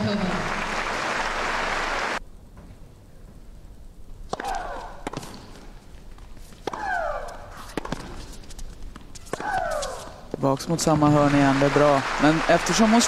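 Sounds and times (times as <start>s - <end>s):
racket hitting tennis ball: 4.3s - 10.4s
player shrieking: 9.3s - 10.2s.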